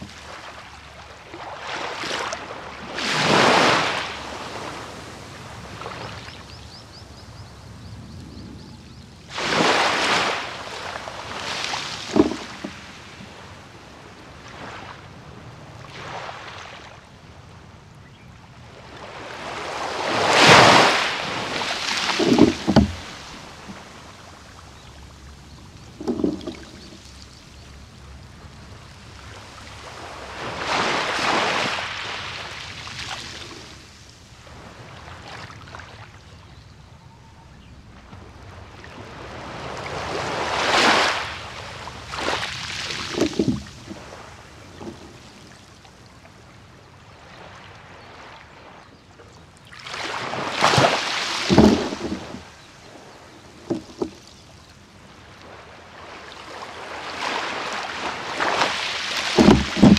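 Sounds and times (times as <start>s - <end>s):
water slapping and sloshing: 0.0s - 6.4s, 9.2s - 15.1s, 18.8s - 33.9s, 38.6s - 46.5s, 49.6s - 59.9s
waves washing on a beach: 0.0s - 36.5s, 37.9s - 59.9s.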